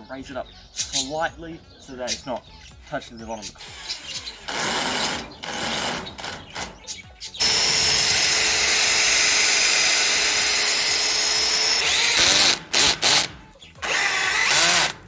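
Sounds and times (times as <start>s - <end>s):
cordless drill driving screws: 7.4s - 15.0s.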